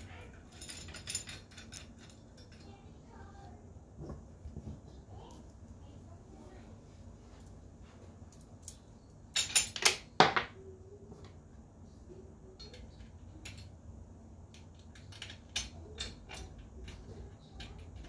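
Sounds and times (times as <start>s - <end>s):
metal hardware clinking: 0.0s - 2.8s, 8.3s - 10.5s, 14.5s - 18.0s.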